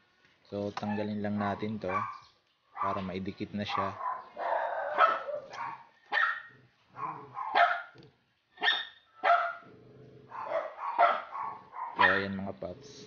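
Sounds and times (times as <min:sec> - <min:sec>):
dog barking: 0:00.8 - 0:03.1, 0:03.7 - 0:08.0, 0:08.6 - 0:09.7, 0:10.3 - 0:12.4.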